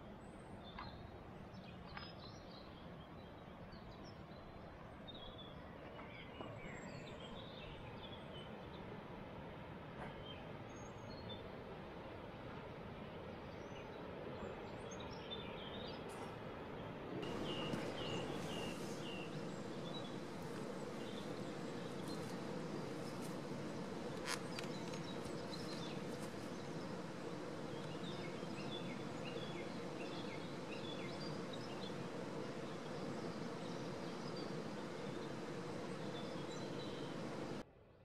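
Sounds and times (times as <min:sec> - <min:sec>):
faint even hum: 0:02.8 - 0:37.6
small birds chirping: 0:13.5 - 0:37.6
low rushing noise: 0:16.1 - 0:37.6.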